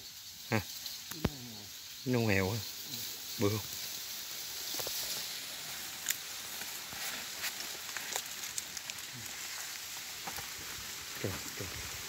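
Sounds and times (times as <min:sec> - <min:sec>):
steady high hiss: 0:00.0 - 0:12.0
dry leaves rustling: 0:00.7 - 0:12.0.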